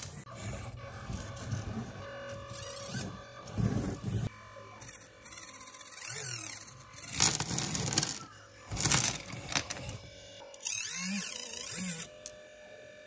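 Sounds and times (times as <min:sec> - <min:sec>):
small motor whine: 0:00.0 - 0:13.0
small rocks clattering: 0:07.2 - 0:09.8.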